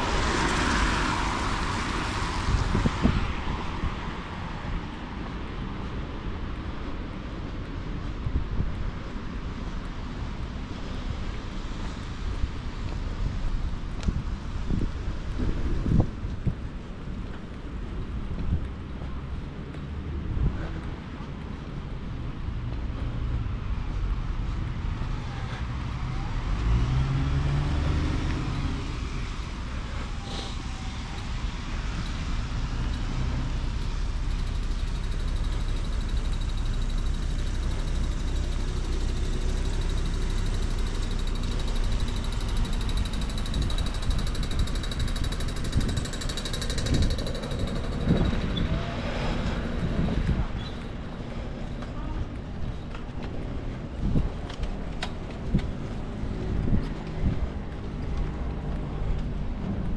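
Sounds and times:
low street rumble: 0.0s - 59.9s
vehicle engine passing: 24.3s - 51.6s
fast high-pitched ticking: 34.3s - 48.4s.

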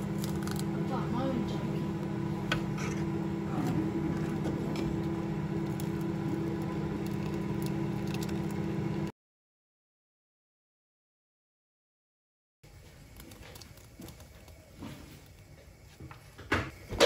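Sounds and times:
steady hum: 0.0s - 9.1s.

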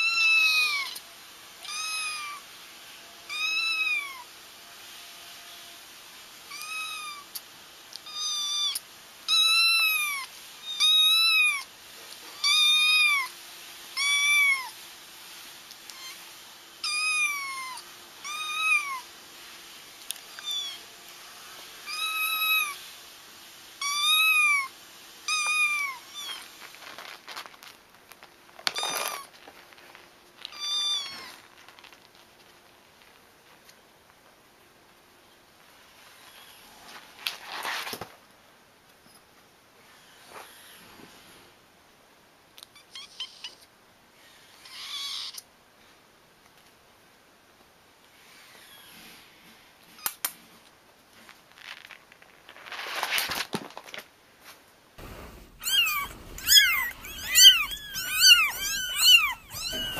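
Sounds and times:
kitten mewing: 55.0s - 59.9s.

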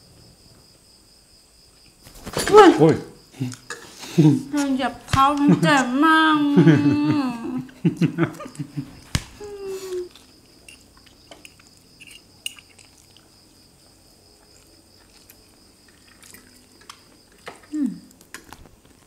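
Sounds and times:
people chewing: 3.3s - 6.0s, 7.1s - 18.9s.

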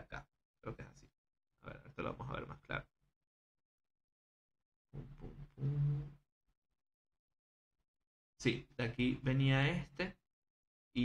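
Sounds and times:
man humming thoughtfully: 5.6s - 6.2s.

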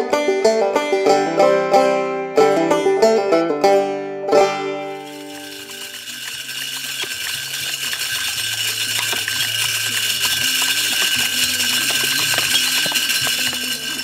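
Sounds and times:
feed clicking and rattling: 5.1s - 14.0s
feeder motor whining: 5.1s - 14.0s.

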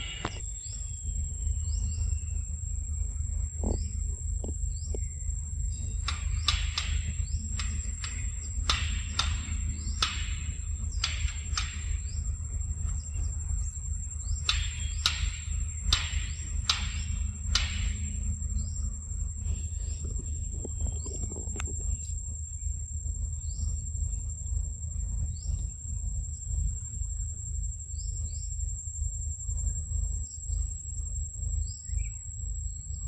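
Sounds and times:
sharp chirps: 0.0s - 2.6s, 4.7s - 21.1s
insects droning: 0.0s - 33.0s
low rumble: 0.0s - 33.0s.

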